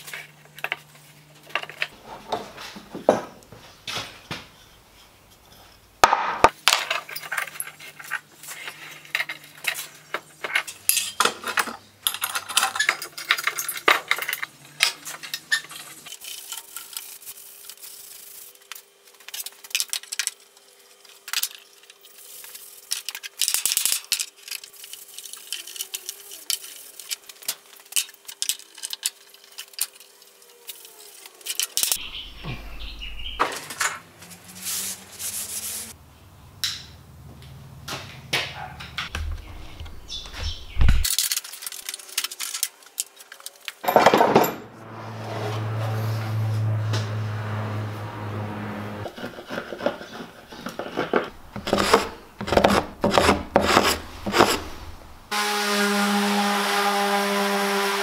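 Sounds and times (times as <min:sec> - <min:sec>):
metal clamps and tools clattering: 0:06.4 - 0:17.0, 0:43.7 - 0:44.7.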